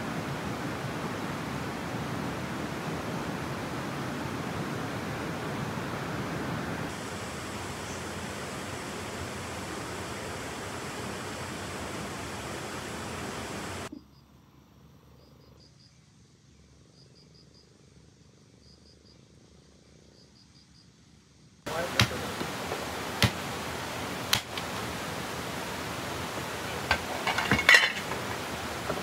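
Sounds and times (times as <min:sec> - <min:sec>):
cricket chirping: 0:13.9 - 0:21.1.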